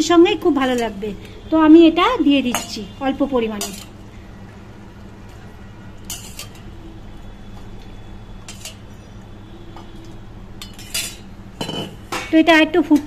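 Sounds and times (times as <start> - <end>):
steel ladle clinking against pans: 3.6 - 4.0, 6.0 - 6.7, 8.4 - 8.9, 10.6 - 13.0.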